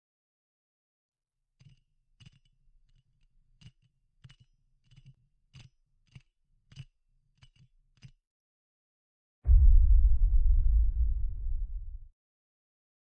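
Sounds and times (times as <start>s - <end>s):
faint low hum: 9.5s - 12.1s.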